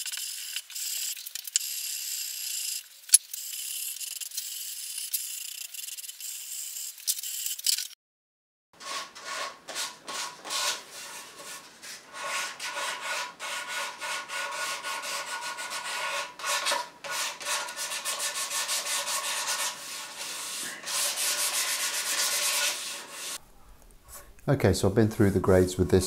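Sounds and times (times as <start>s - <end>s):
sandpaper rubbing wood: 8.8s - 23.4s.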